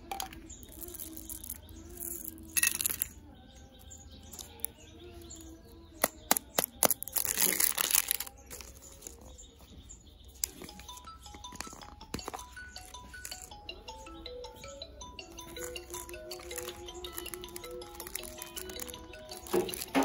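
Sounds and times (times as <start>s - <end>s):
soft music: 0.0s - 20.0s
plastic wrapper clicks and snaps: 6.0s - 9.2s, 15.6s - 20.0s
plastic crinkling: 6.4s - 9.4s, 15.4s - 20.0s.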